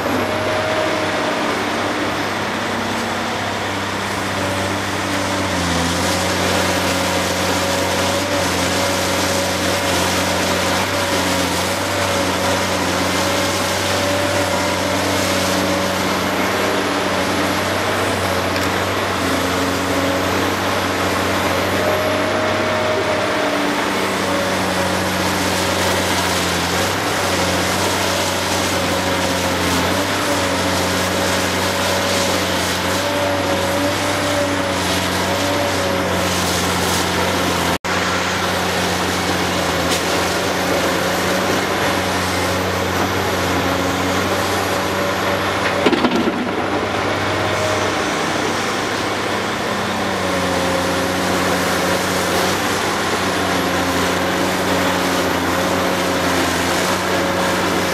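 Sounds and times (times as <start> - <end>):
heavy diesel engines running: 0.0 - 57.9
brief clatter: 45.6 - 46.6.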